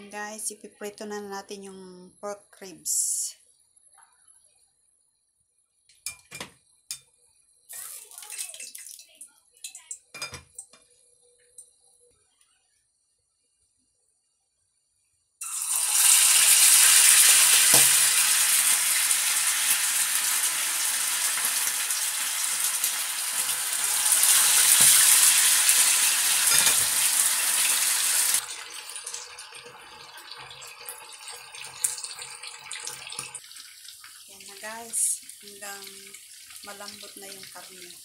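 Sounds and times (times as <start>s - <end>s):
meat sizzling in hot oil: 7.7s - 10.2s, 15.4s - 38.0s.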